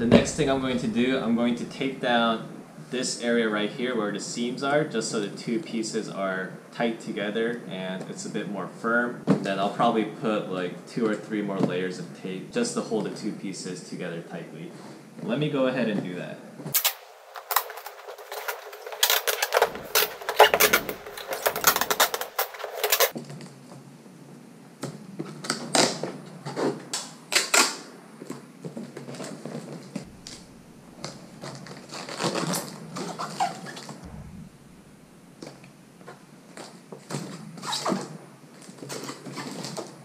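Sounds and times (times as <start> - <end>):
packing tape pulled off roll: 16.7 - 23.2.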